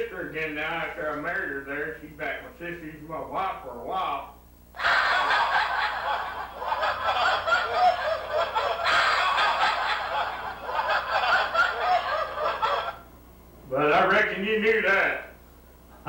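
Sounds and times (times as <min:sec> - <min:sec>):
audience laughter: 0:04.8 - 0:13.0.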